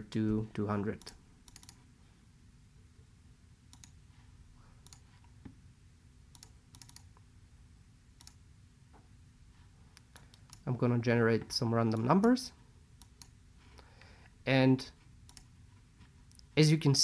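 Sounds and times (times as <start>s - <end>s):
faint low hum: 0.0s - 17.0s
computer mouse clicks: 1.0s - 1.8s, 3.7s - 4.0s, 4.8s - 5.4s, 6.3s - 7.2s, 8.2s - 8.4s, 9.9s - 10.6s, 13.0s - 13.4s, 15.2s - 15.5s.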